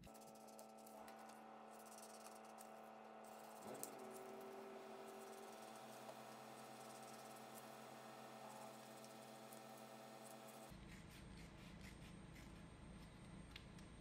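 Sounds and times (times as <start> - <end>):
scissors snipping paper: 0.0 - 7.7
faint steady hum: 0.0 - 14.0.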